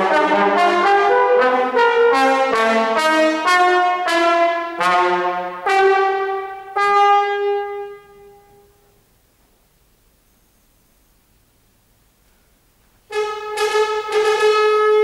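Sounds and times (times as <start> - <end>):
trombone notes: 0.0 - 9.0, 13.1 - 15.0.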